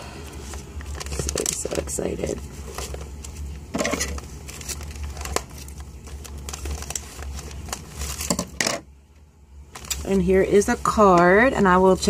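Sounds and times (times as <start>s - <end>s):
paper wrapping crinkling: 0.2s - 8.7s, 9.7s - 11.2s.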